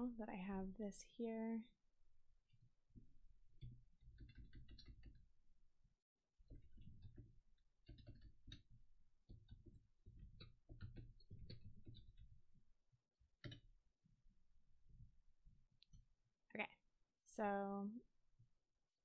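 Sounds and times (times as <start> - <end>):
computer keyboard typing: 3.6 - 5.2, 6.6 - 12.4, 13.4 - 13.6.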